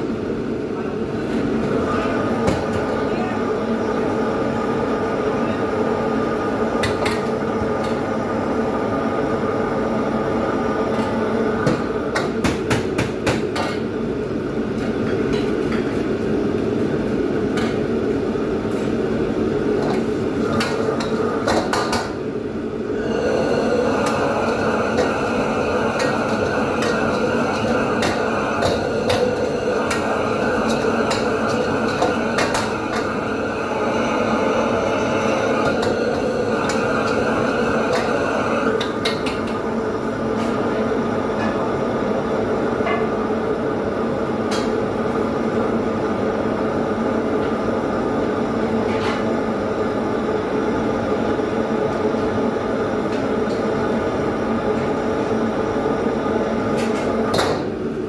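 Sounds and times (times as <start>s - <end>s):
burners and extractor humming: 0.0s - 58.0s.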